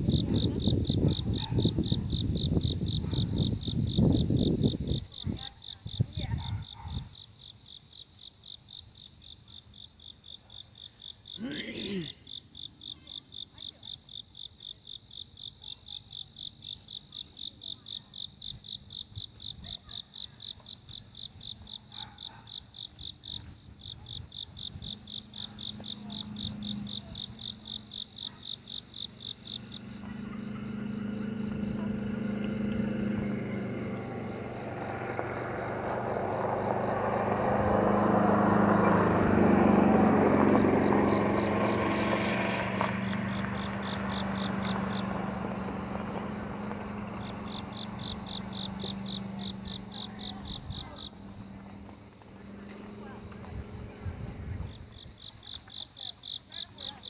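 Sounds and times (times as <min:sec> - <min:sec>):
low engine hum: 0:00.0 - 0:07.1, 0:23.2 - 0:57.0
insect chirping: 0:00.0 - 0:57.0.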